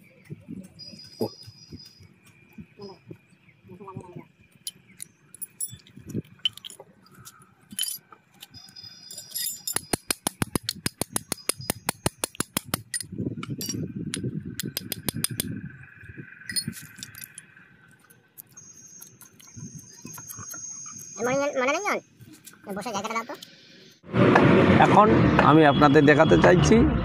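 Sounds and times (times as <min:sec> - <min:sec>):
metal brake parts clicking: 0:04.6 - 0:15.5, 0:16.4 - 0:21.0.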